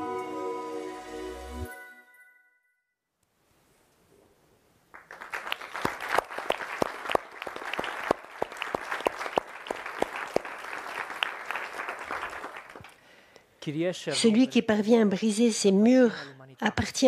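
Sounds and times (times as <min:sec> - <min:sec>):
nearby sharp claps: 0:04.9 - 0:13.0
audience applauding: 0:04.9 - 0:13.1.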